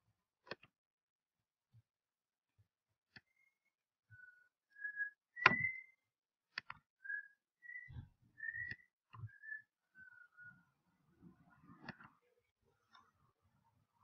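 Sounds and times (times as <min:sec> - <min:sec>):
person whistling: 0:04.2 - 0:06.0, 0:07.0 - 0:10.5.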